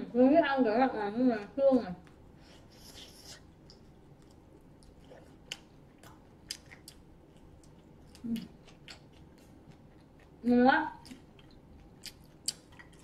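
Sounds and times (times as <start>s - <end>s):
chewing on chicken: 2.8s - 13.0s.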